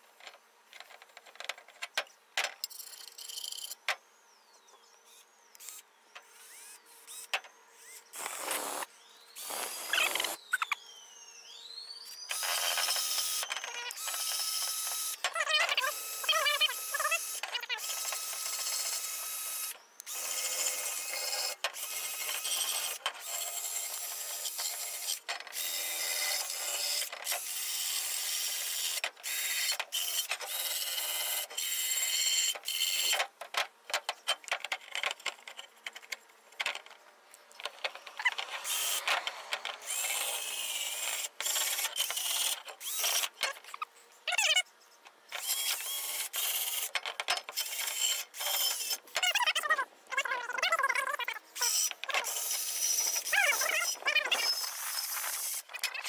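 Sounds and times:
wire wheel drill scrubbing metal: 8.2s - 10.4s.

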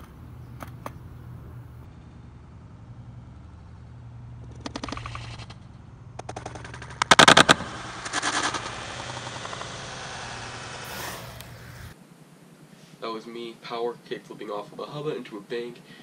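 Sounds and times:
skateboard wheels rolling on concrete: 0.0s - 1.9s, 4.4s - 12.0s.

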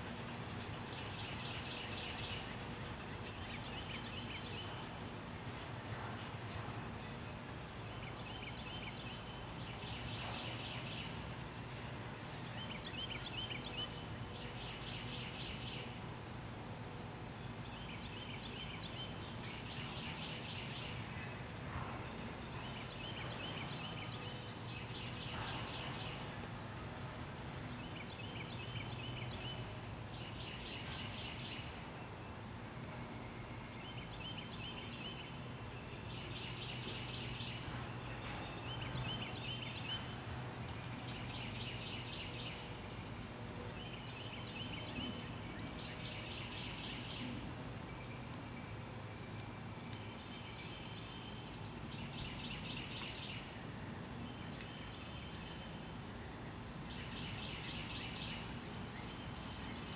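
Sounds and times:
songbird singing: 0.0s - 59.9s.

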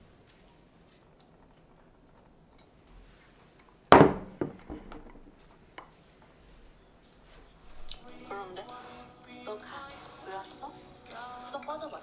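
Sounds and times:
light knocks: 3.9s - 5.3s.

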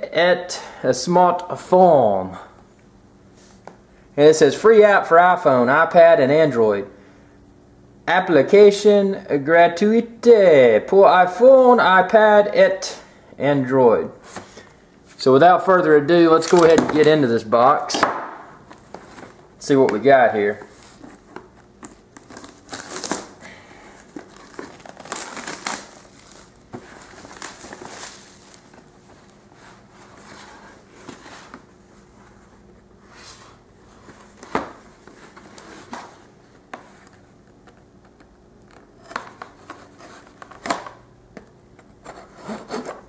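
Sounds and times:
plastic shrink-wrap crinkling: 21.9s - 23.4s, 24.0s - 29.4s.

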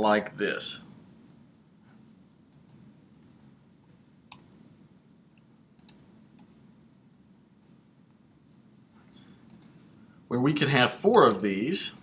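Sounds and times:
keyboard and mouse clicks: 2.5s - 3.5s, 4.3s - 4.6s, 5.8s - 6.6s, 9.4s - 9.8s.

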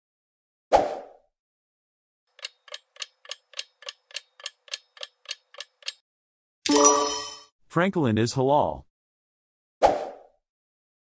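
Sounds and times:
clock-like ticking: 2.3s - 6.0s.

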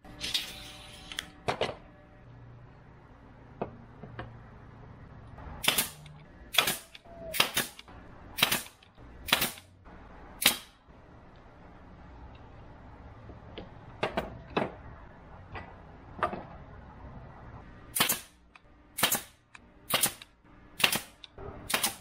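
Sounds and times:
nail gun firing: 5.6s - 9.7s, 10.4s - 10.8s, 17.9s - 18.4s, 19.0s - 22.0s.

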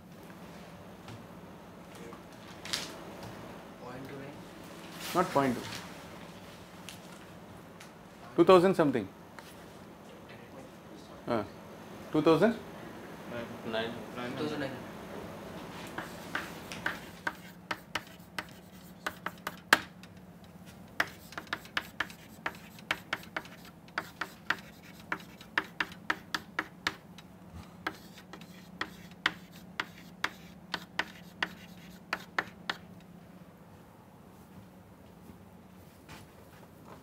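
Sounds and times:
chalk tapping and scratching: 15.8s - 32.9s.

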